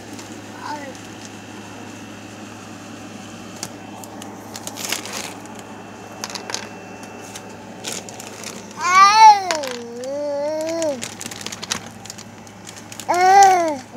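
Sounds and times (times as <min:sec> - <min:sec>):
steady low hum: 0:00.0 - 0:13.9
plastic balls clicking: 0:06.2 - 0:06.7, 0:07.8 - 0:13.9
baby's voice: 0:08.8 - 0:11.0, 0:13.0 - 0:13.9.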